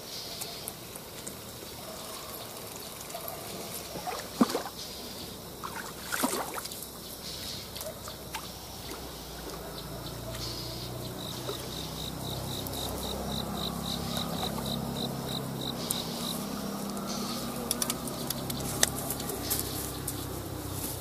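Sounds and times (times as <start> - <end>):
fish splashing at water surface: 3.8 - 5.0, 5.6 - 6.9.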